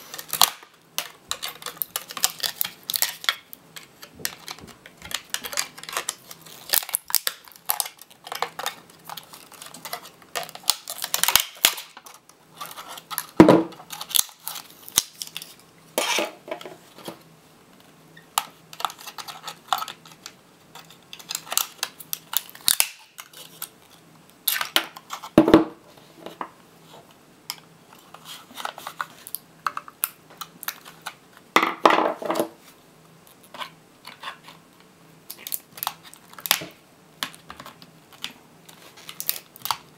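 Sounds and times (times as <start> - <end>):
plastic cracking and creaking: 0.1 - 15.6, 35.3 - 39.9.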